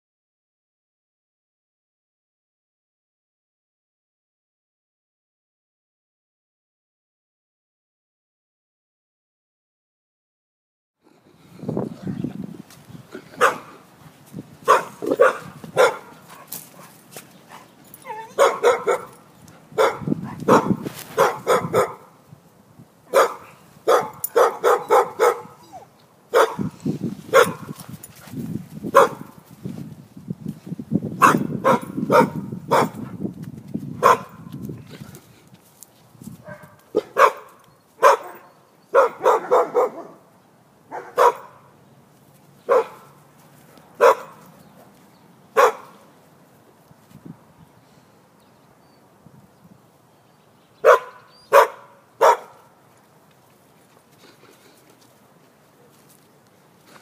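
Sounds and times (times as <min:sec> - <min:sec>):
dogs barking: 0:13.3 - 0:13.8, 0:14.6 - 0:22.2, 0:23.1 - 0:27.8, 0:28.9 - 0:29.4, 0:31.2 - 0:33.1, 0:34.0 - 0:34.5, 0:36.4 - 0:40.3, 0:40.9 - 0:41.7, 0:42.7 - 0:43.2, 0:44.0 - 0:44.5, 0:45.5 - 0:46.1, 0:50.8 - 0:52.7.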